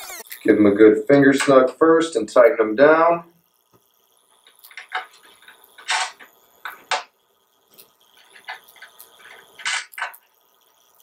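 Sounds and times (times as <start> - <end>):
nuts spun onto bolts clicking: 4.4 - 7.1, 7.8 - 10.9.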